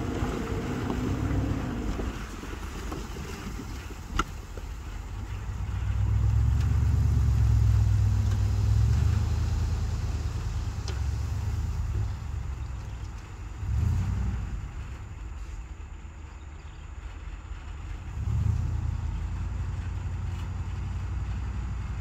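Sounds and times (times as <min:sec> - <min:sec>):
diesel engine running hard: 0:00.0 - 0:22.0.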